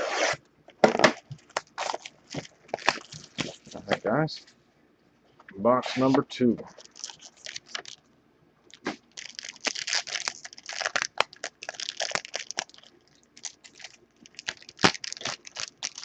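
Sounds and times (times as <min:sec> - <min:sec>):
foil pack crinkling and tearing: 0:01.1 - 0:03.9, 0:06.7 - 0:08.0, 0:08.7 - 0:16.0.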